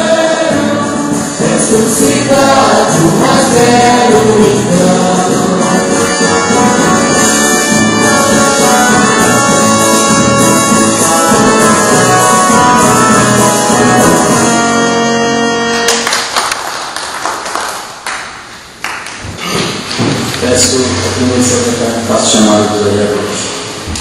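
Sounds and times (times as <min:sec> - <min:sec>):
band playing an anthem: 0:00.0 - 0:16.0.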